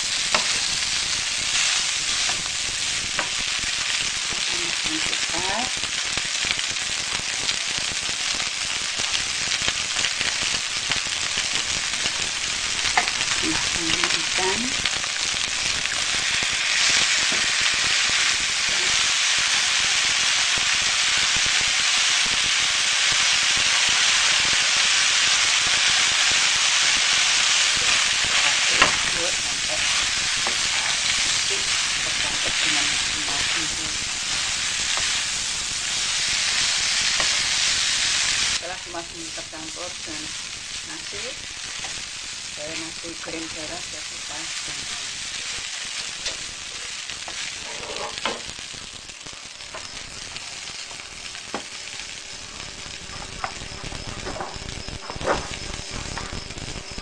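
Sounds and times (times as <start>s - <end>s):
spatula scraping a wok: 0.0s - 3.4s, 27.5s - 38.6s, 45.4s - 48.5s
rice sizzling in a wok: 0.0s - 57.0s.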